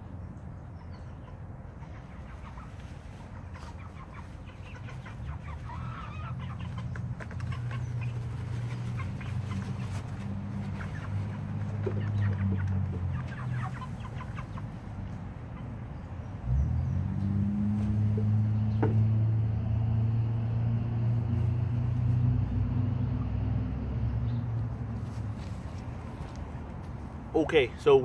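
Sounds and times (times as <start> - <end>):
chickens clucking: 0.7 - 19.4.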